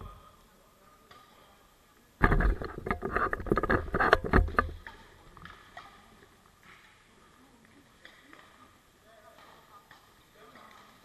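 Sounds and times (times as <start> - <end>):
rustling and knocking on microphone: 2.2 - 5.0.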